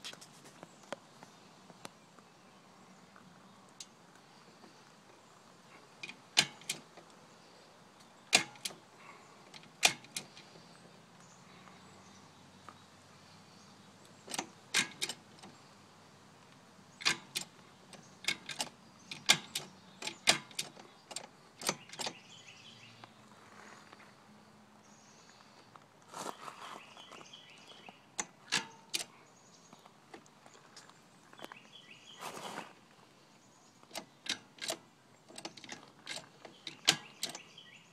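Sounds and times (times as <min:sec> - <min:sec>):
metallic chain clicks: 0:33.9 - 0:37.5.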